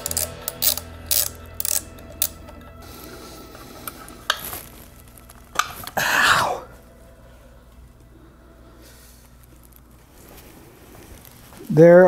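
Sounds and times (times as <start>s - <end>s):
tool clicks: 0.0s - 2.6s.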